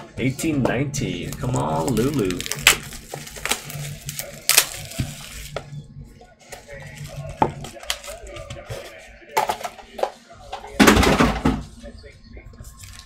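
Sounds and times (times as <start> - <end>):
plastic wrapper crinkling: 1.2 - 5.7, 6.6 - 9.0, 12.6 - 13.0.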